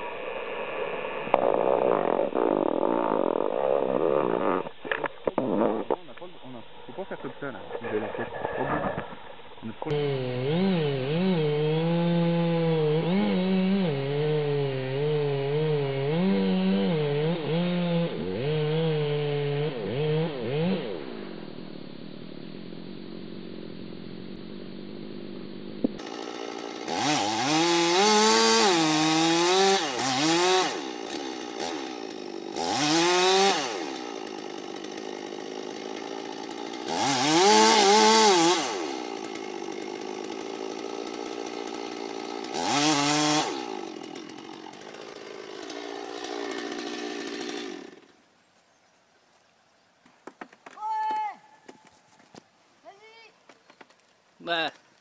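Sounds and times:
chainsaw revving cutting wood: 0:00.2 - 0:06.0, 0:09.8 - 0:21.7, 0:24.8 - 0:48.2.

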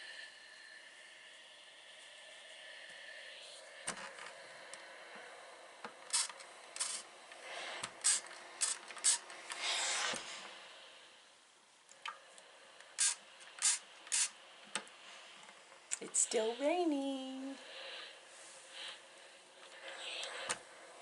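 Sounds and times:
steam iron hissing: 0:04.9 - 0:11.4, 0:12.6 - 0:21.0.

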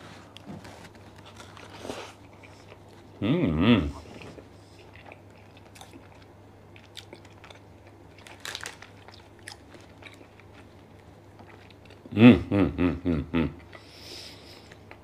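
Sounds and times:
faint hum: 0:00.0 - 0:15.0
person chewing food: 0:00.3 - 0:03.2, 0:03.8 - 0:12.1, 0:13.5 - 0:15.0
person humming briefly: 0:03.2 - 0:04.2, 0:12.1 - 0:13.6.

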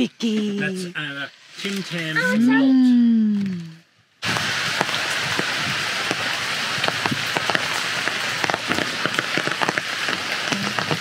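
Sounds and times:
rain falling: 0:03.4 - 0:11.0
raindrops ticking on surfaces: 0:03.4 - 0:11.0.

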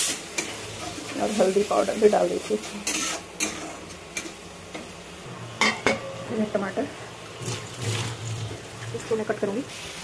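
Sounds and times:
metal spatula scraping a pan: 0:00.0 - 0:04.8
onion frying with light sizzle: 0:00.0 - 0:10.0.

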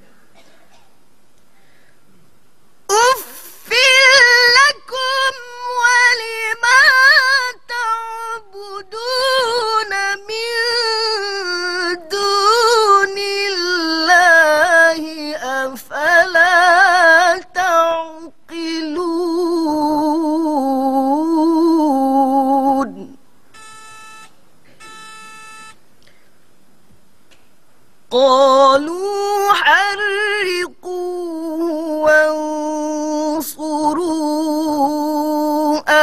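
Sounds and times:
woman breathing: 0:01.5 - 0:02.1
woman reciting melodically: 0:02.9 - 0:23.3, 0:28.1 - 0:36.0.

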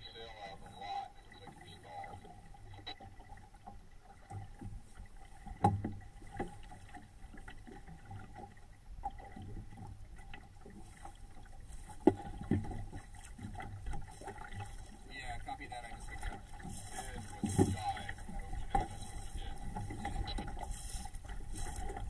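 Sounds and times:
water slapping against boat hull: 0:00.8 - 0:22.0
knocks on boat: 0:05.6 - 0:06.5.

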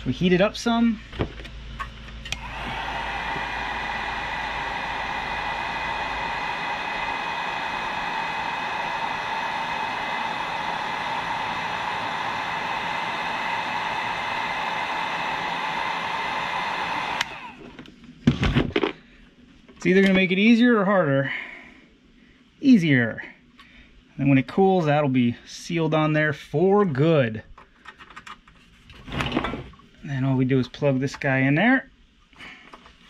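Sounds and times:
heat gun blowing with whine: 0:02.2 - 0:17.8.

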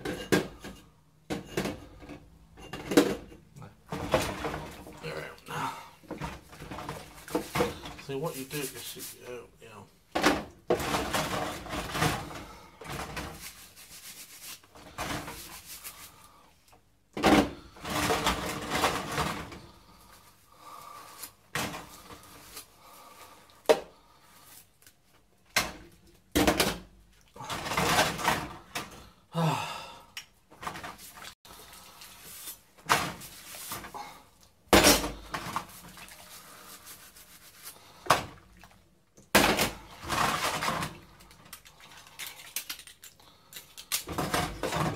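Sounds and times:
dishes knocking and clattering: 0:00.0 - 0:05.0, 0:44.2 - 0:44.9.

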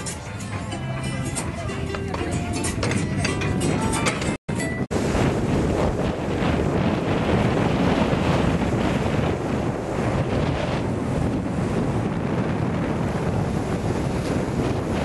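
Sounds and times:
wind buffeting microphone: 0:01.6 - 0:15.0
surf breaking over rocks: 0:04.9 - 0:15.0.

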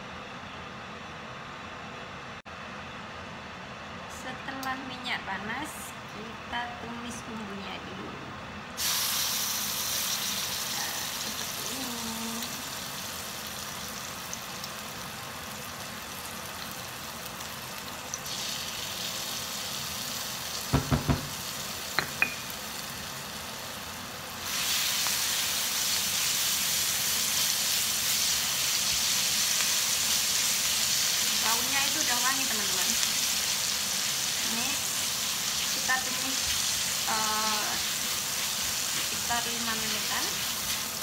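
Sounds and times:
spice paste sizzling in oil: 0:08.8 - 0:41.0
sharp knocks: 0:20.7 - 0:21.4.

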